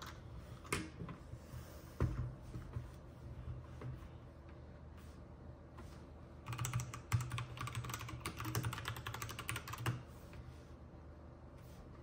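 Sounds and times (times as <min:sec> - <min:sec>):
fast typing on mechanical keyboard: 0:06.4 - 0:10.0.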